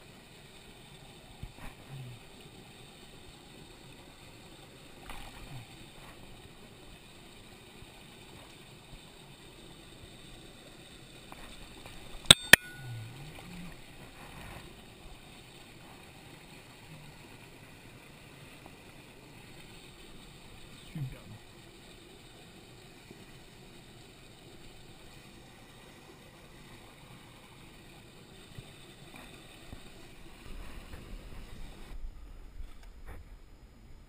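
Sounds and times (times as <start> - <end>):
stream water running: 0.0 - 34.0.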